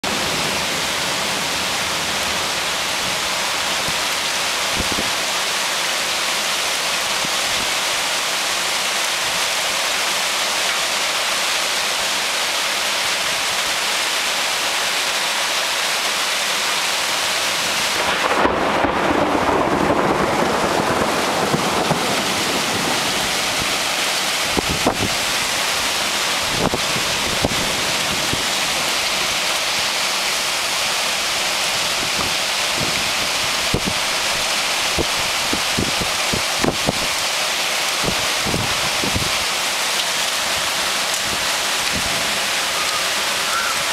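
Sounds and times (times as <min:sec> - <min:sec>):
heavy rain downpour hissing: 0:00.0 - 0:43.9
wind gust buffeting microphone: 0:18.0 - 0:25.6, 0:26.4 - 0:28.8, 0:34.9 - 0:37.1.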